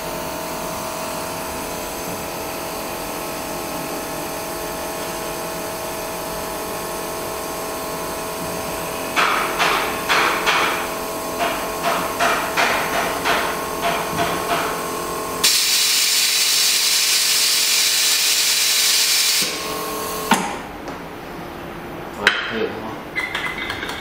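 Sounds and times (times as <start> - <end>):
steady machine tone: 10.8 - 20.3
loud steady hiss: 15.4 - 20.3.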